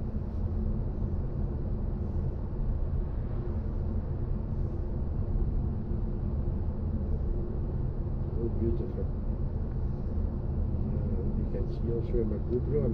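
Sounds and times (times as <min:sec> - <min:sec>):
road and tyre rumble: 0:00.0 - 0:12.9.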